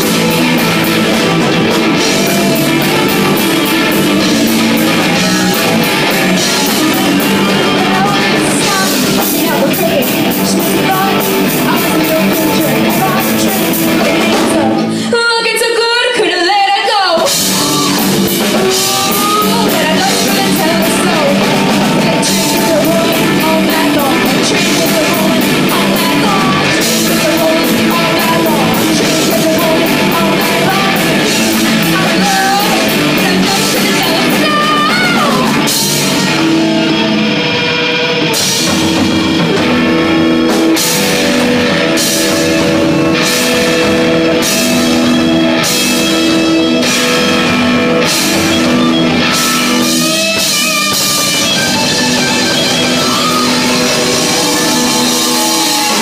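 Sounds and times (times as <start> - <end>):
drum crashes: 0.0 - 14.7, 38.3 - 56.0
rock music: 0.0 - 56.0.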